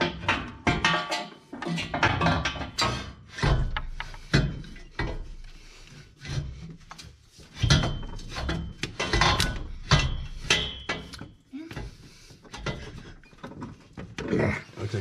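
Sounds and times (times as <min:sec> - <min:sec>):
metal exhaust header clunking: 0:00.0 - 0:05.4, 0:07.5 - 0:11.3
metal rubbing and scraping: 0:00.0 - 0:15.0.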